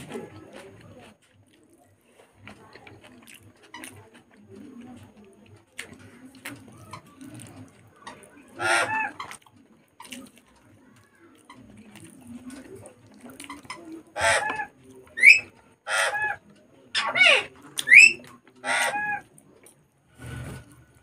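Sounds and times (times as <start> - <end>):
birds calling harshly: 8.5 - 9.4, 13.6 - 19.2
bird squawks rising in pitch: 14.2 - 16.4, 17.0 - 19.2.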